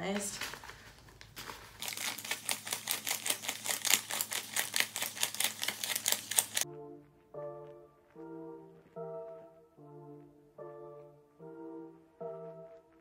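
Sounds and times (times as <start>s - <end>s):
banknotes being counted by hand: 0.2s - 6.6s
brass-led background music: 6.6s - 13.0s.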